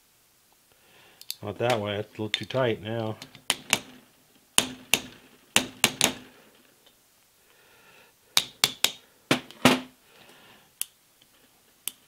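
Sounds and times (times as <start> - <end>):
hammer tapping metal punch: 4.6 - 6.2, 8.4 - 9.8.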